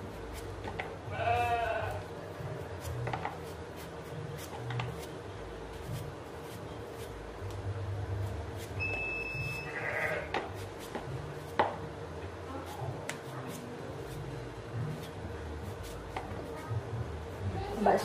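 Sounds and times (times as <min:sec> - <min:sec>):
knife scraping potato: 0:00.0 - 0:07.2, 0:08.2 - 0:11.6, 0:12.5 - 0:16.7
goat or sheep bleating: 0:01.1 - 0:02.0, 0:09.6 - 0:10.3.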